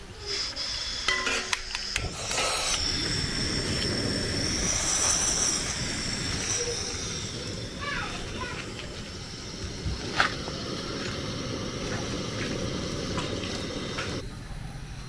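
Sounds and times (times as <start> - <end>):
gas burner flame hissing: 0.0 - 15.0.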